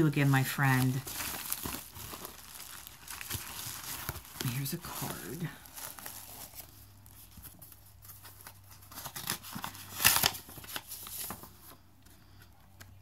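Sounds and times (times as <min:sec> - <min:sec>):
paper envelope rustling: 0:00.0 - 0:13.0.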